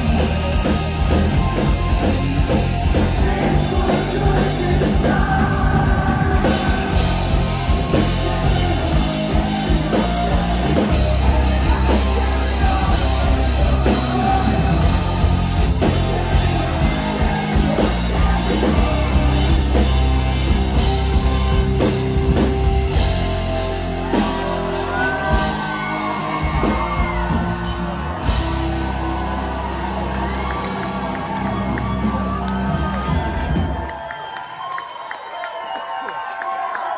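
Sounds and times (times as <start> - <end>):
distorted electric guitars: 0.0 - 33.6
bass guitar: 0.0 - 33.9
drum kit: 0.0 - 34.0
person singing: 2.9 - 21.9.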